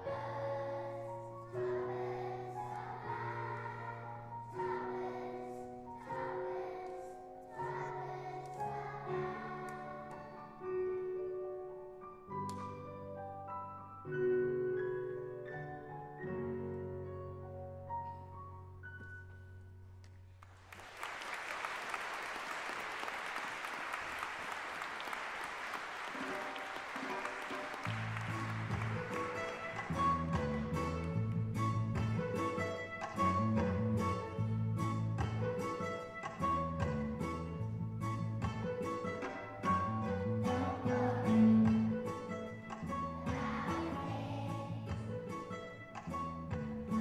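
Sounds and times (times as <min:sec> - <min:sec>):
children's choir singing: 0:00.0 - 0:10.8, 0:39.8 - 0:42.4, 0:43.1 - 0:45.3
piano: 0:00.0 - 0:22.2, 0:23.0 - 0:47.0
audience applause: 0:20.4 - 0:30.6.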